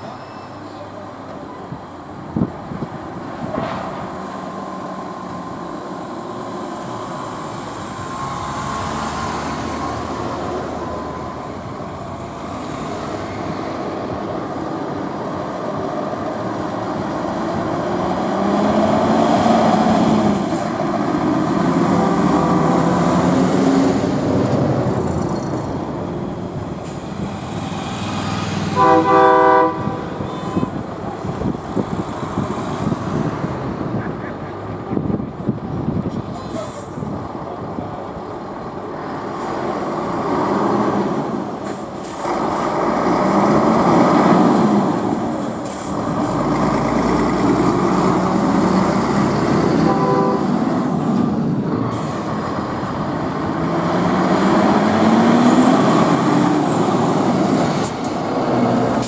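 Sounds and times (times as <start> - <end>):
vehicle engines running: 0.0 - 59.0
loud horn blast: 28.8 - 30.8, 49.7 - 50.6.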